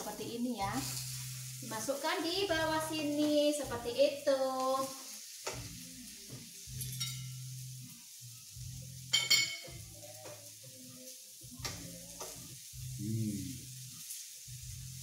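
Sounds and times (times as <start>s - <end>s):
food sizzling on a grill: 0.0s - 15.0s
metal utensil clinking: 6.8s - 7.4s, 9.1s - 9.7s.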